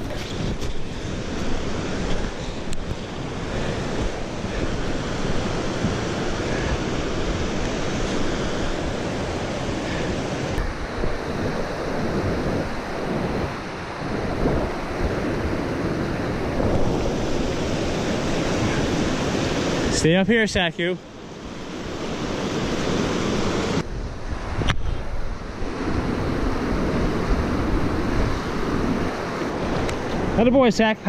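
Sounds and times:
river rapids rushing over rocks: 0.0 - 14.9
wind noise on microphone: 0.0 - 19.9, 21.8 - 30.4.

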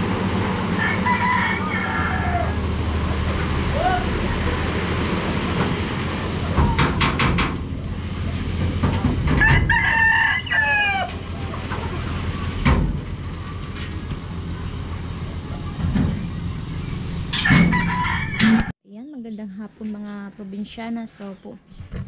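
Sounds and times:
truck engine running: 0.0 - 18.7
rooster crowing: 0.7 - 2.8, 9.4 - 11.5, 17.4 - 18.7.

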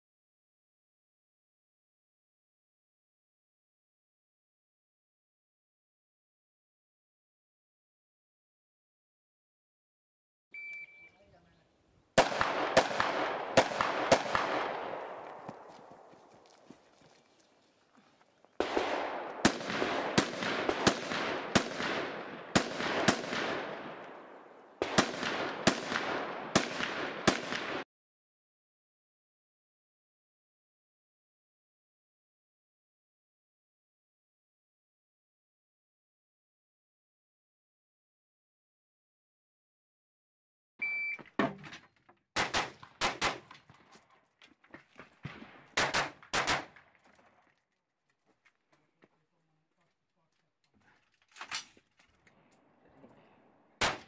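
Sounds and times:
shot timer beep: 10.6 - 11.2, 40.8 - 41.2
rifle shots with echoing tail: 12.2 - 16.2, 18.6 - 27.8, 42.4 - 43.5, 45.2 - 46.9, 53.8 - 54.0.

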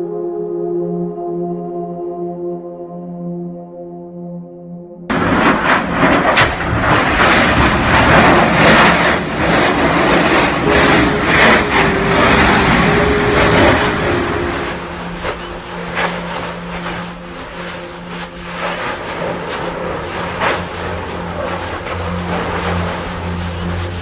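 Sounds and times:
lava roaring: 5.1 - 24.0.

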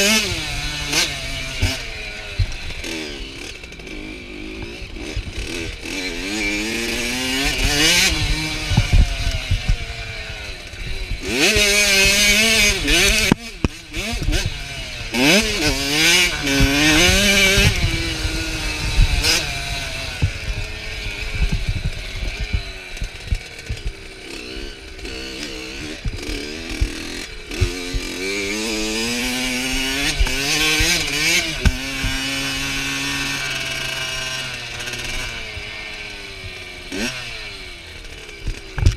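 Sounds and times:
two-stroke dirt bike engine buzzing: 0.0 - 38.9.

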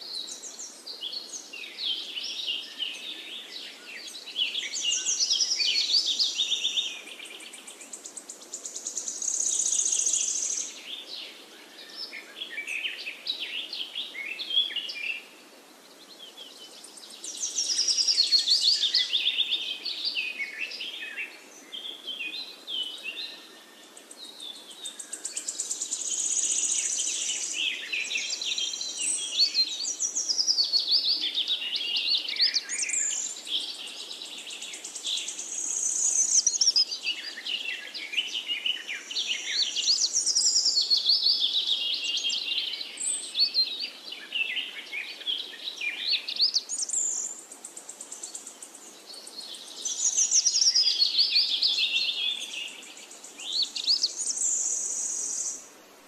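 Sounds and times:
birds chirping and singing: 16.0 - 55.6.

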